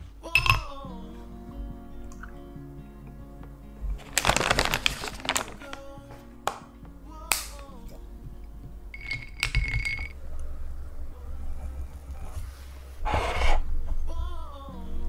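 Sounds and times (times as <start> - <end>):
soft background music: 0.0 - 15.0
plastic bag crinkling open: 4.0 - 5.9.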